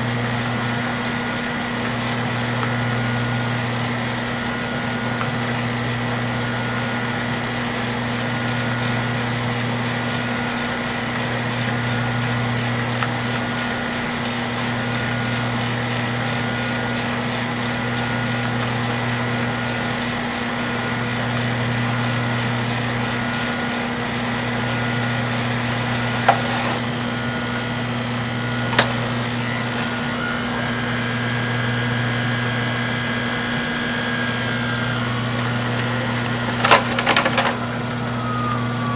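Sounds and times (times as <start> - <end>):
tape transport whirring: 0.0 - 38.9
thin high whine: 0.0 - 38.9
low hum: 34.2 - 38.9.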